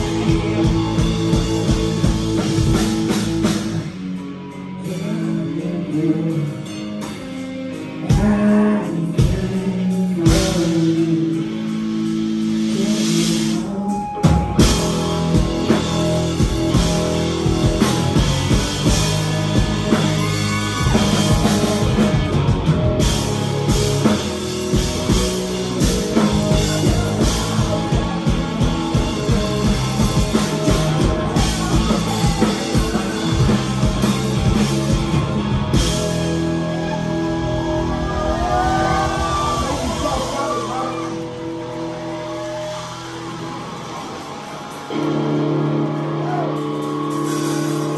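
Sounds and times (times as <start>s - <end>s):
drum kit steady beat: 0.0s - 4.3s, 8.1s - 42.1s
bass: 0.0s - 47.9s
electric guitars: 0.0s - 47.9s.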